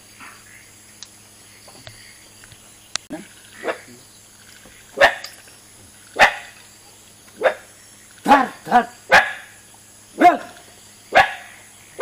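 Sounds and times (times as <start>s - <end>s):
dog barking: 5.0s - 5.3s, 6.2s - 6.6s, 7.4s - 7.6s, 8.3s - 9.5s, 10.2s - 11.6s.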